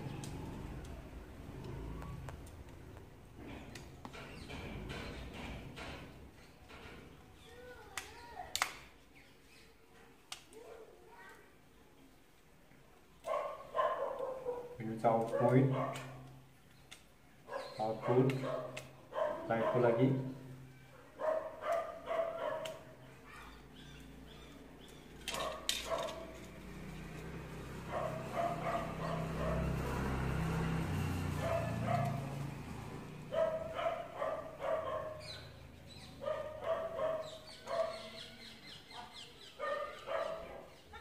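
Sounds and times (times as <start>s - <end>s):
dog barking: 13.2s - 16.3s, 17.5s - 20.2s, 21.0s - 23.6s, 25.3s - 26.4s, 27.9s - 29.8s, 31.3s - 32.3s, 33.3s - 35.5s, 36.2s - 38.3s, 39.6s - 40.7s.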